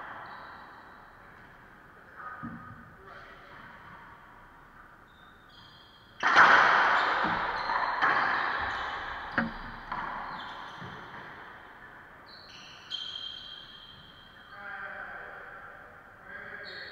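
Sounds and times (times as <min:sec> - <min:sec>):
racquetball hits echoing: 0:02.3 - 0:05.3, 0:06.0 - 0:14.3.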